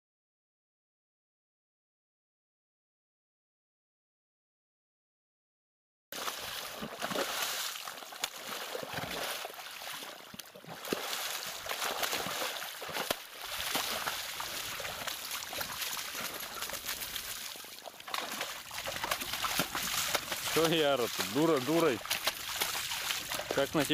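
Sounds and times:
horse stamping through water: 6.2s - 23.9s
muddy water splashing: 6.2s - 23.9s.

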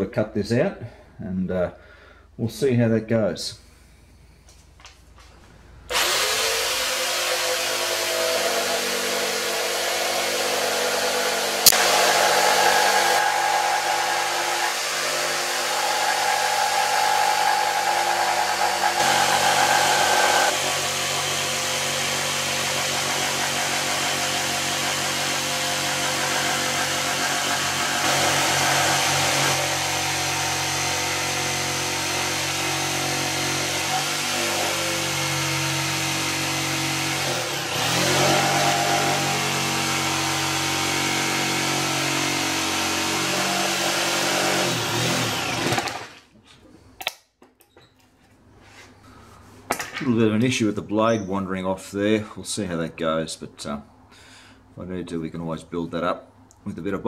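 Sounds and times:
jigsaw cutting wood: 5.9s - 46.3s.

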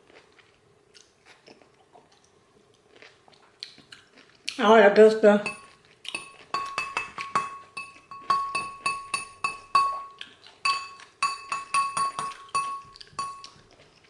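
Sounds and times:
metal utensil clinking in bowl: 5.4s - 13.6s.

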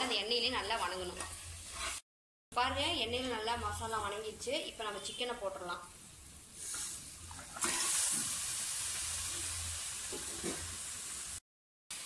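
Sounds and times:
chicken sizzling in hot oil: 0.4s - 2.0s, 6.4s - 12.0s.

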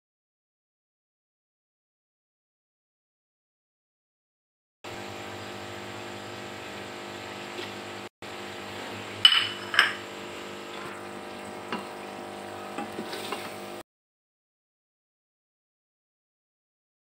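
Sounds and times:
steady hum: 4.9s - 13.8s.

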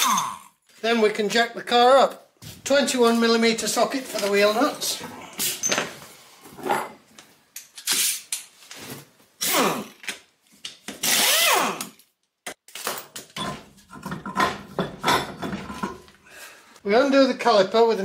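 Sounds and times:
pneumatic impact wrench whining: 11.0s - 12.0s.

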